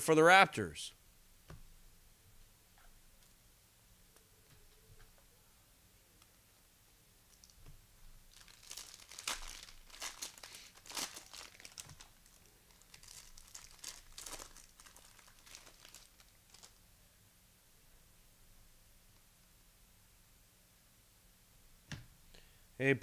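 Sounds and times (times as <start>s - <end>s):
cellophane wrapper crinkling: 7.3s - 16.8s.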